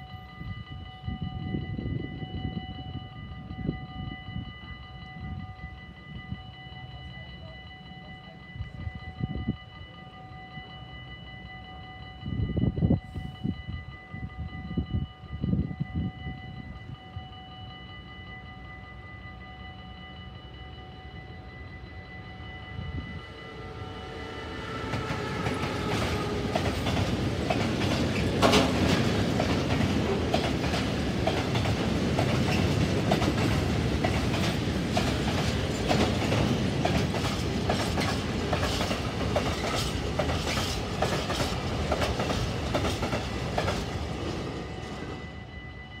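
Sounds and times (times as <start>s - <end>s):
electric locomotive whine: 0.0s - 46.0s
train wheels clicking over rail joints: 24.5s - 45.1s.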